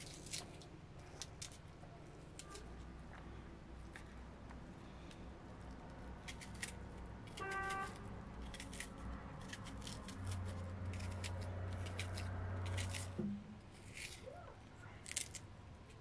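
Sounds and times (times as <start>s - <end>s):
low steady hum: 0.0s - 16.0s
knife cutting onion: 6.3s - 13.2s.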